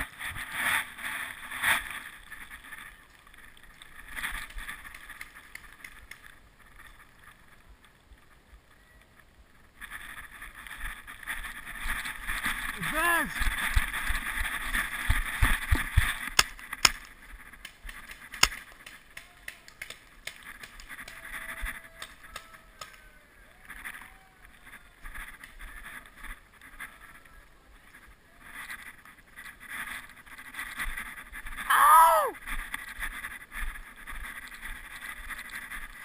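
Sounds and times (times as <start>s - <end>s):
sharp cracks: 11.9s - 21.4s
camera rustling and knocking: 13.5s - 19.0s.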